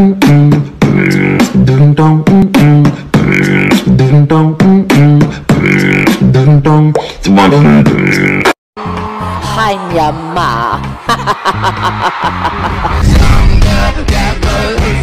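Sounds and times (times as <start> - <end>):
electronic music loop: 0.0 - 8.5.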